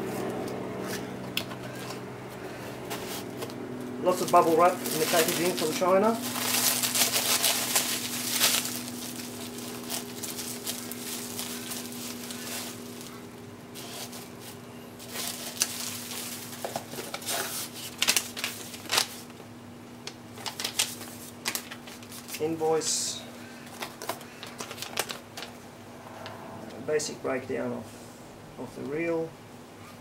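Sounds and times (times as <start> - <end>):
bubble wrap crinkling: 4.1 - 19.4, 20.1 - 22.6, 23.6 - 25.6.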